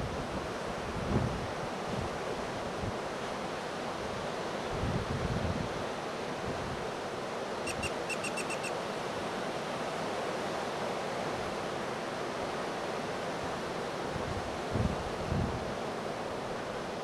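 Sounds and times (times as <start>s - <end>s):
wind rumbling on microphone: 0.0s - 3.0s, 4.7s - 5.8s, 14.1s - 15.8s
short high chirps: 7.7s - 8.7s.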